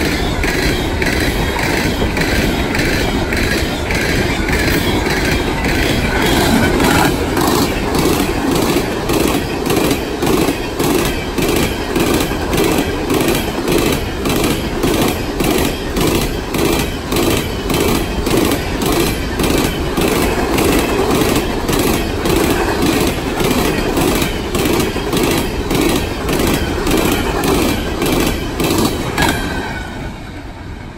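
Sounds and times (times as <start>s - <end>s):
clickety-clack over rail joints: 0.0s - 30.9s
steel wheels rumbling on rail: 0.0s - 30.9s.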